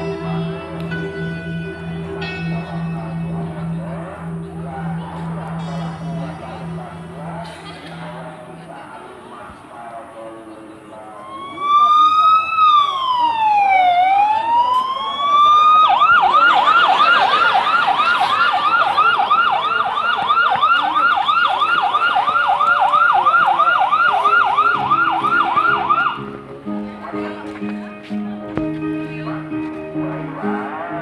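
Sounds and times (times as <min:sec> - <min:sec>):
electronic siren wailing and yelping: 0:11.2 - 0:26.2.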